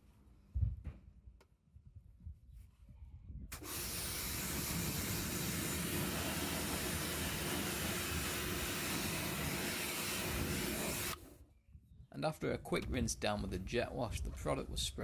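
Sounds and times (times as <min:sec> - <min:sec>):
pressure washer spraying water: 0:03.5 - 0:11.3.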